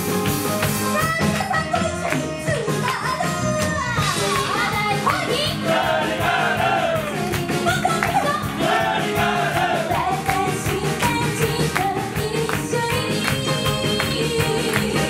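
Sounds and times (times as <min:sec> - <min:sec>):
live band playing: 0:00.0 - 0:15.0
women singing together: 0:04.7 - 0:15.0.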